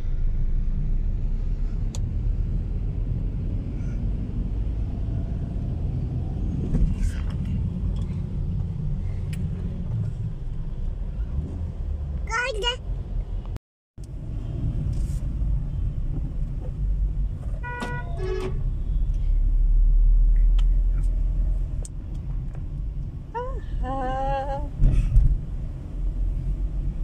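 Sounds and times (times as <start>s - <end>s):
car rumble from inside: 0.0s - 27.0s
small child's voice: 12.3s - 12.8s.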